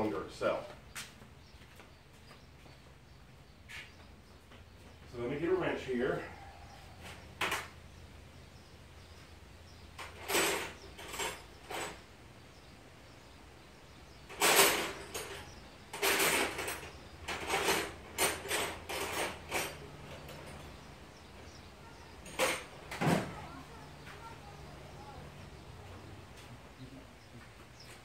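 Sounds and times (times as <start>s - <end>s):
hand tools clattering: 10.0s - 12.1s, 14.3s - 20.9s, 21.5s - 23.5s.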